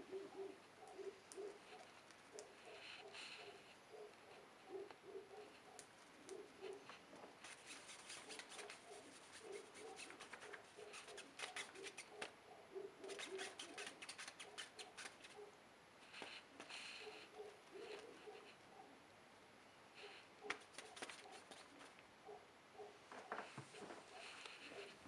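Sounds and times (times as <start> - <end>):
faint rapid clicking and rustling: 0.9 - 12.4, 13.0 - 15.4, 20.4 - 22.1.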